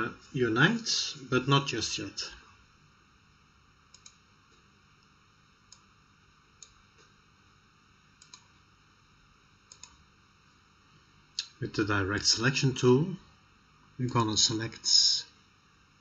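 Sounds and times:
computer mouse clicks: 0:03.9 - 0:04.6, 0:05.7 - 0:05.9, 0:08.2 - 0:08.5, 0:09.7 - 0:10.0.

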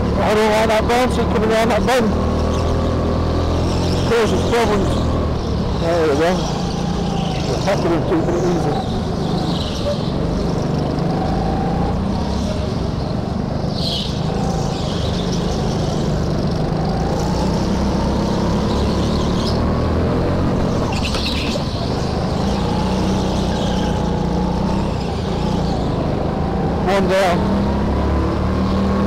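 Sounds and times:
go-kart engine running hard: 0:00.0 - 0:29.0.

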